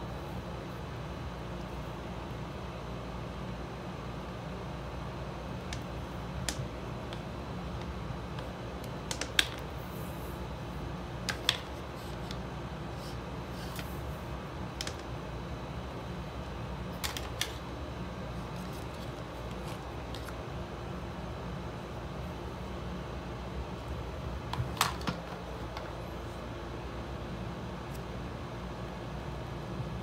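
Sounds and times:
steady low hum: 0:00.0 - 0:30.0
cable plugs clicking and tapping: 0:05.6 - 0:09.7, 0:11.2 - 0:12.4, 0:14.8 - 0:15.2, 0:17.0 - 0:17.6.

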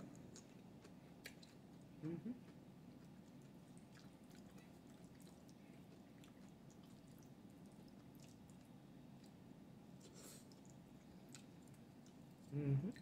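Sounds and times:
short vocal sound: 0:02.0 - 0:02.4
chewing mouth clicks: 0:03.0 - 0:09.4.

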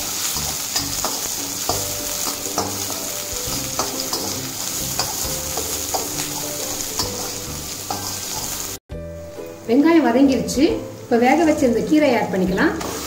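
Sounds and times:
shallots sizzling in hot oil: 0:00.0 - 0:13.0
metal ladle scraping and knocking pan: 0:00.4 - 0:08.6.

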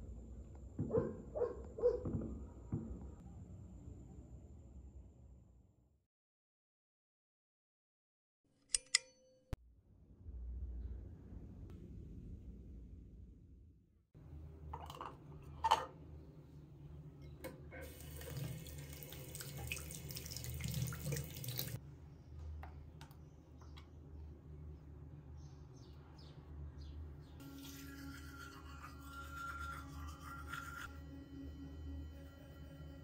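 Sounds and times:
sink tap running: 0:17.8 - 0:21.8.

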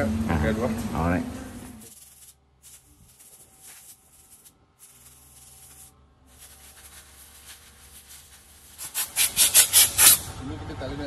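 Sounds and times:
compressed air blow gun hissing: 0:01.7 - 0:10.3.

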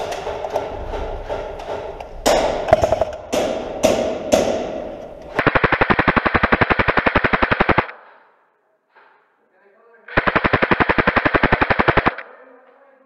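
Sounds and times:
airsoft gun firing: 0:00.2 - 0:08.4, 0:10.1 - 0:12.3.

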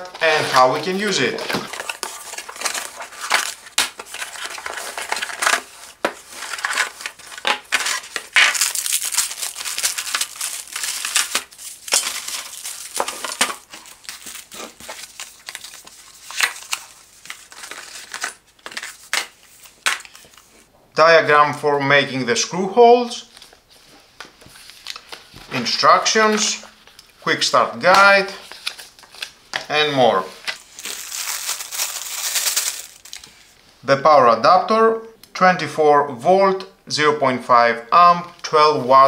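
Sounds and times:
cardboard box being unpacked: 0:00.1 - 0:20.4, 0:30.5 - 0:33.2.

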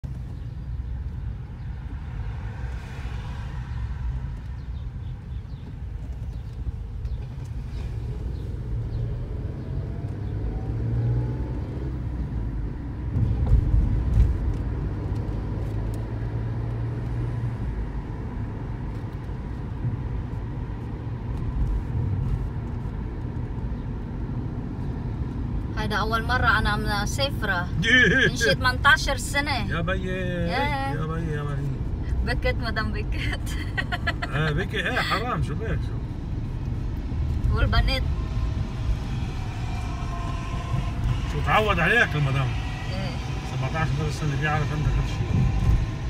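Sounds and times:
car cabin rumble: 0:12.1 - 0:15.3, 0:32.0 - 0:46.0.

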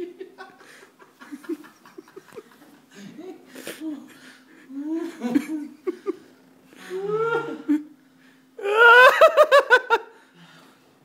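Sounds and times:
man laughing uncontrollably: 0:00.0 - 0:02.7, 0:04.8 - 0:06.2, 0:08.6 - 0:10.1.

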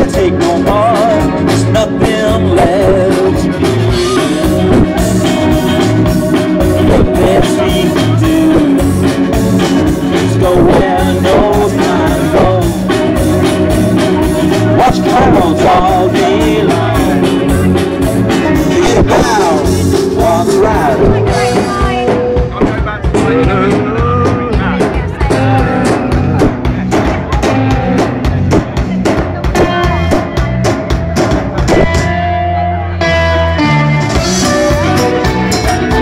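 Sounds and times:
man singing: 0:00.0 - 0:28.5
live rock band playing: 0:00.0 - 0:36.0.

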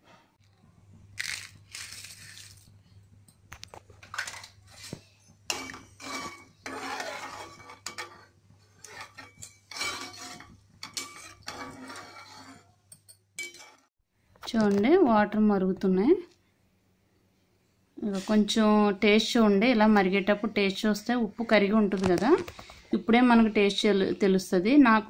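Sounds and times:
metal ladle scraping a pot: 0:04.1 - 0:12.8, 0:13.4 - 0:13.9.

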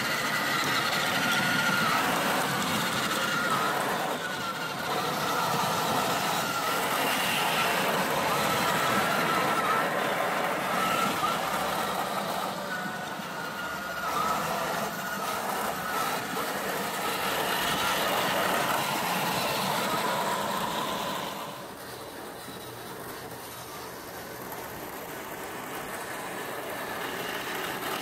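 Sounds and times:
electric motors whining: 0:00.0 - 0:28.0.

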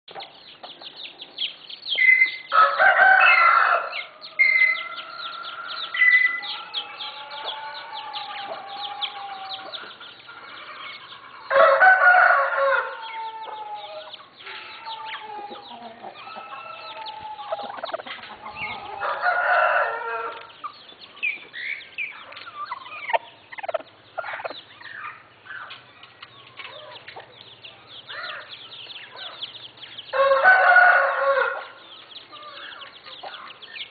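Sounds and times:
chicken clucking: 0:01.9 - 0:33.9
rooster crowing: 0:02.5 - 0:09.8, 0:10.4 - 0:20.5, 0:30.1 - 0:31.8.

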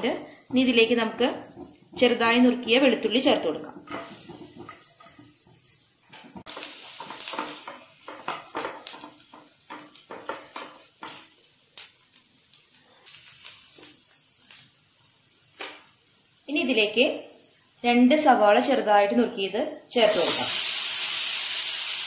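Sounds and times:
garlic sizzling in butter: 0:00.0 - 0:22.0
wooden spatula scraping pan: 0:00.5 - 0:11.2.

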